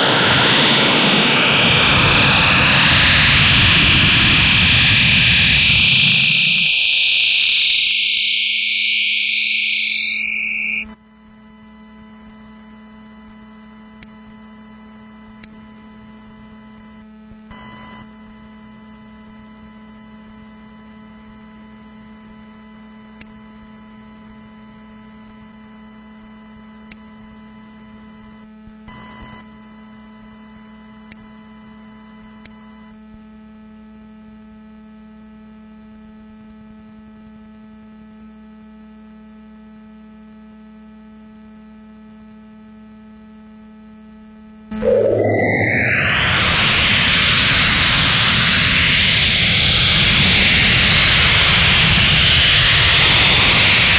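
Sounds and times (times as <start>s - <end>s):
synthesized hiss rising in pitch: 0.0s - 10.8s, 44.7s - 48.8s
electrical hum with faint tones: 44.7s - 46.8s.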